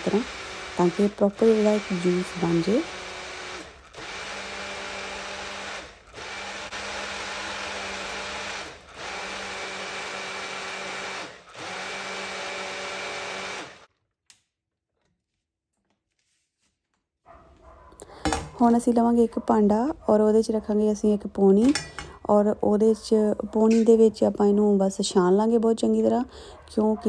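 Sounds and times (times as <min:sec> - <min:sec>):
blender running: 0:00.0 - 0:13.9.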